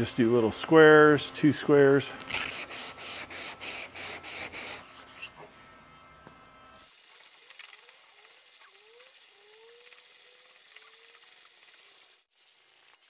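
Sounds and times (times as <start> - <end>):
sandpaper rasping: 2.3 - 5.4
faint rubbing of sanding block: 2.4 - 5.4.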